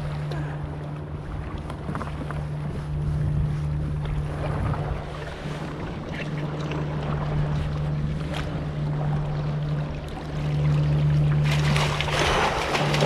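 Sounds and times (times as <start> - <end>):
wind on microphone: 0.0 - 9.8
boat motor humming: 0.0 - 13.0
water noise: 0.0 - 13.0.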